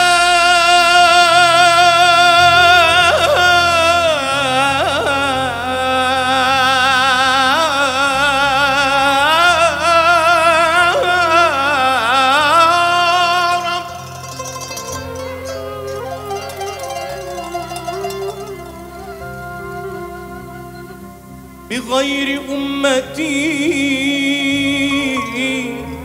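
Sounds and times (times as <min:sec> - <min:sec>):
man singing with vibrato: 0:00.0 - 0:20.2, 0:21.7 - 0:26.0
low band accompaniment: 0:00.8 - 0:26.0.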